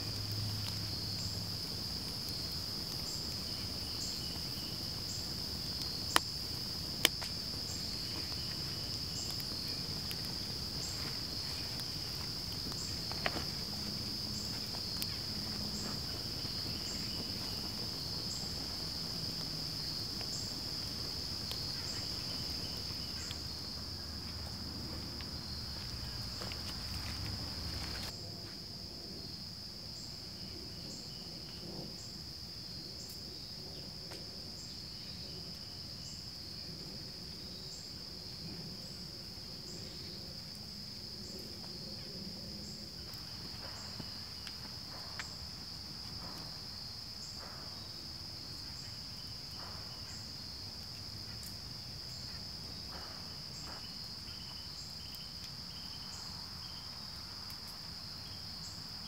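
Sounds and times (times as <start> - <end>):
faint crackles: 0.0 - 28.2
insects trilling: 0.0 - 59.0.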